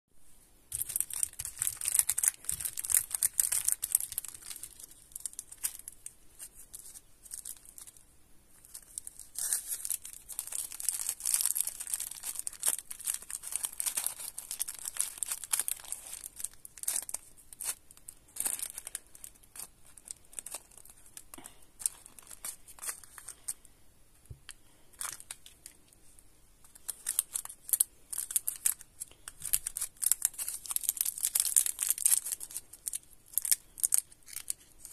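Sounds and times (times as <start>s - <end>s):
plastic wrappers crinkling and tearing: 0.7s - 8.0s, 8.6s - 23.6s, 24.3s - 26.0s, 26.6s - 34.9s.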